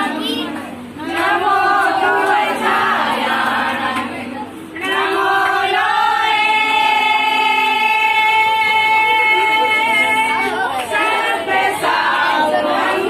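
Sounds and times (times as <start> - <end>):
women singing folk song: 0.0 - 13.0.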